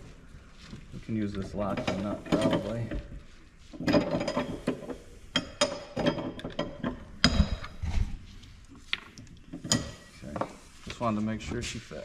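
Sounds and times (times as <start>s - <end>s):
metal tools clinking on a workbench: 3.8s - 7.6s, 9.6s - 10.4s.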